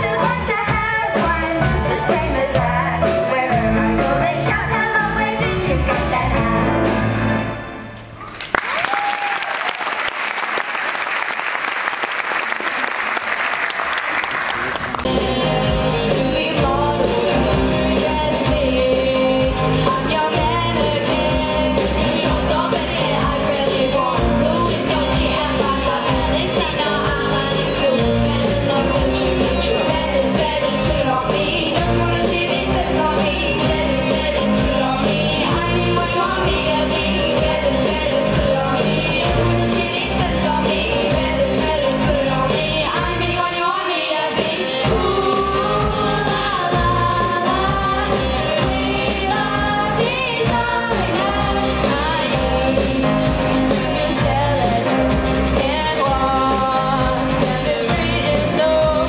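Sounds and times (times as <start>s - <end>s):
live rock and roll band: 0.0s - 9.3s, 13.7s - 59.0s
audience applauding: 8.2s - 15.1s
person singing: 14.8s - 59.0s.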